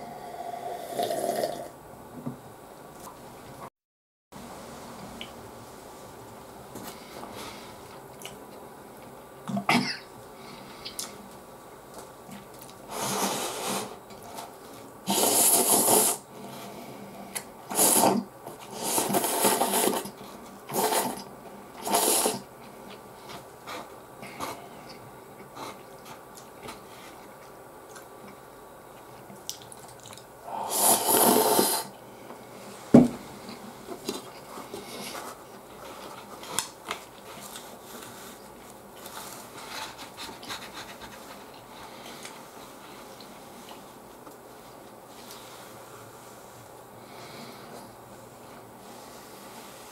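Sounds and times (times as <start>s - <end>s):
person slurping noodles: 0.0s - 1.7s, 15.1s - 16.3s, 17.7s - 22.5s, 30.5s - 32.0s
chewing: 24.4s - 30.3s.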